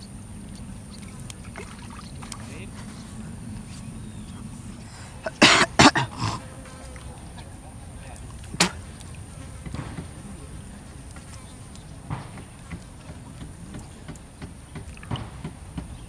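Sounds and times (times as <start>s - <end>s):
man coughing: 5.2s - 6.4s.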